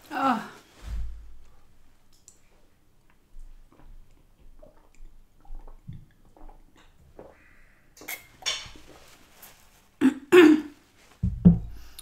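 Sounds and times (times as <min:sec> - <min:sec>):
sipping and swallowing: 0:03.7 - 0:07.4
paper napkin rustling: 0:08.8 - 0:10.0.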